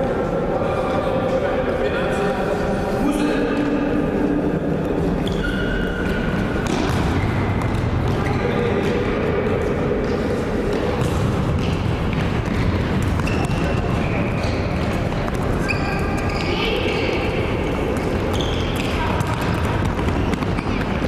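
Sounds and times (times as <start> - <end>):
shoes squeaking: 5.1 - 8.8, 12.4 - 21.0
ball kicked and bouncing on floor: 6.1 - 8.2.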